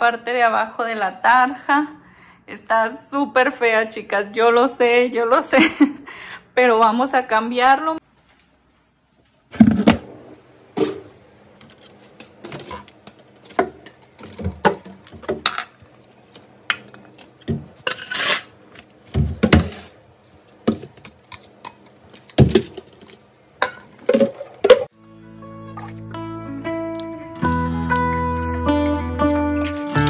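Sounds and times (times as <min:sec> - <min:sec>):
plastic bottles clattering on tile: 0:20.7 - 0:24.9.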